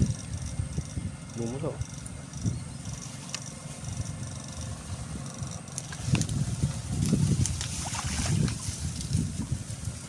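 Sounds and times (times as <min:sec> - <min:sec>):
tall grass rustling and crunching: 0:02.8 - 0:10.0.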